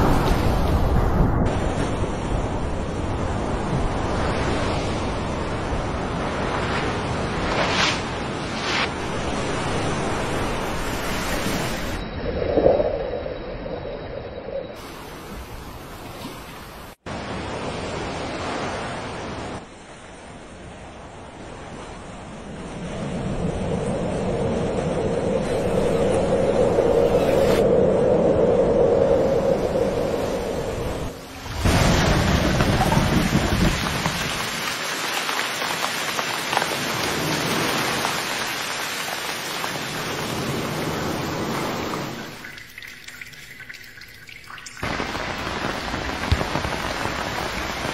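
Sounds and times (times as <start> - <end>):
ocean waves breaking: 0.0 - 27.6, 29.2 - 42.8, 44.8 - 47.9
rain drops pattering: 31.7 - 47.9.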